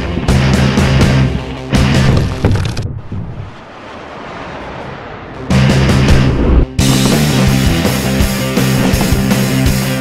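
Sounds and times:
loud heavy rock music: 0.0s - 2.1s, 5.5s - 10.0s.

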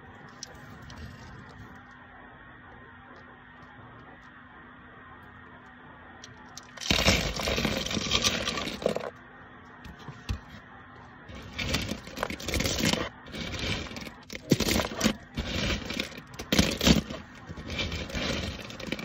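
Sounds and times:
wood chips clattering: 6.2s - 9.1s, 11.3s - 19.0s
sharp clicks of wood chips: 6.2s - 9.2s, 11.3s - 19.0s.

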